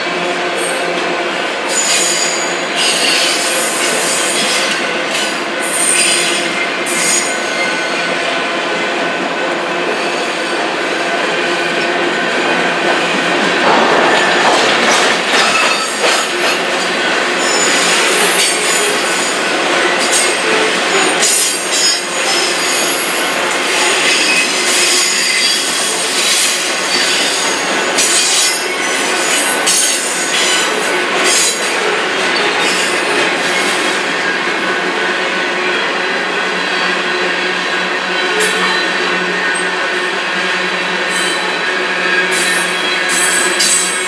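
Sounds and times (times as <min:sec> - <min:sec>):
train wheels clattering on rails: 0:09.9 - 0:34.7, 0:37.8 - 0:44.0
knocks at rail joints: 0:13.6 - 0:16.7.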